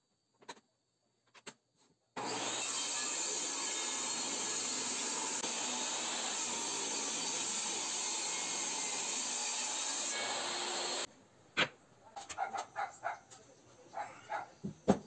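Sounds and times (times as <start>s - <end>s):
power tool working wood: 2.2s - 11.1s
dog barking: 12.0s - 14.6s.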